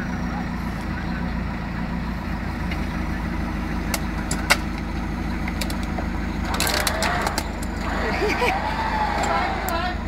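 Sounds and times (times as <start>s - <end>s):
diesel engine running at low revs: 0.0s - 10.0s.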